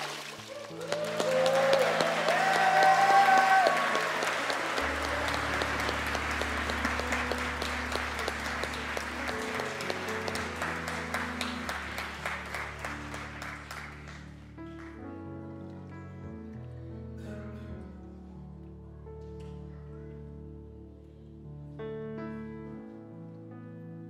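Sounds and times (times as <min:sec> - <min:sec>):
congregation applauding: 0:00.0 - 0:15.1
soft music with low chords: 0:00.7 - 0:24.0.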